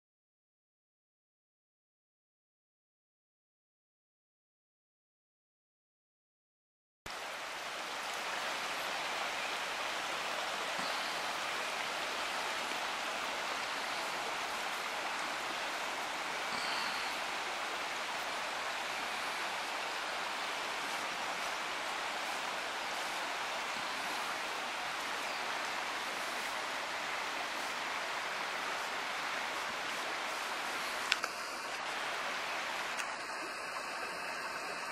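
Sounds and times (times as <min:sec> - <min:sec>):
river water rushing: 0:07.1 - 0:34.9.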